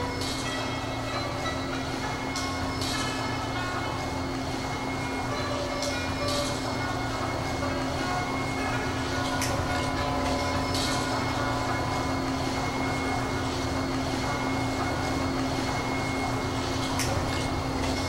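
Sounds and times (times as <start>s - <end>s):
boat motor droning: 6.6s - 18.0s.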